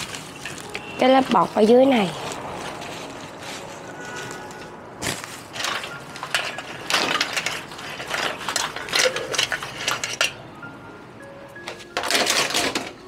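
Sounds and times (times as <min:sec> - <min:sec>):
bubble wrap crinkling: 0:00.0 - 0:09.5.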